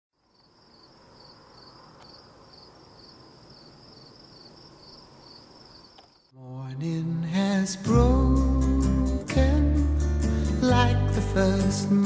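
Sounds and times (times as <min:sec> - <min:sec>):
crickets chirping: 0:00.2 - 0:06.4.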